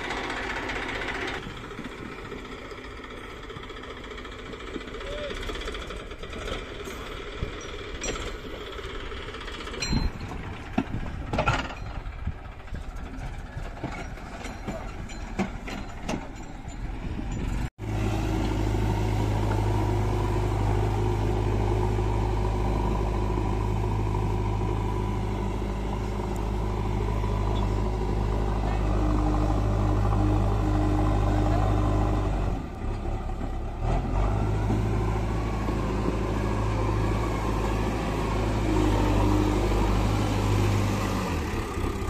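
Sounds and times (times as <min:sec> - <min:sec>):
tractor diesel engine: 0:00.0 - 0:42.0.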